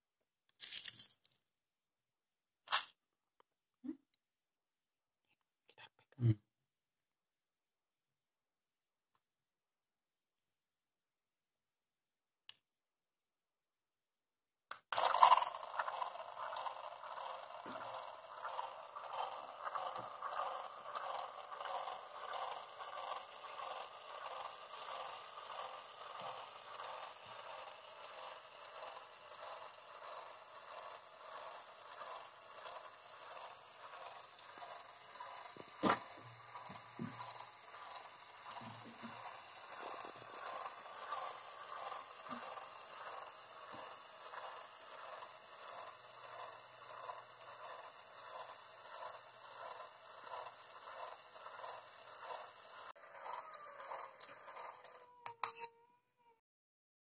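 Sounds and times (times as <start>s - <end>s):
small motor whirring: 14.8s - 56.4s
rhythmic rattle: 15.0s - 55.0s.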